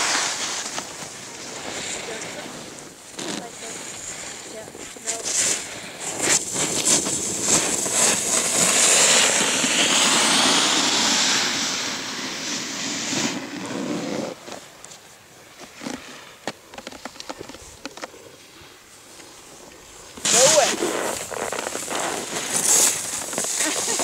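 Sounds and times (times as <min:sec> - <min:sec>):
snowboard scraping over snow: 0:00.0 - 0:24.0.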